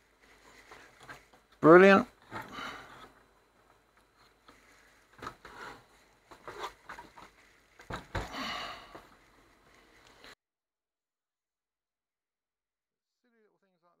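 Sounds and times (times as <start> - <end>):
short rustling: 0.0 - 8.1.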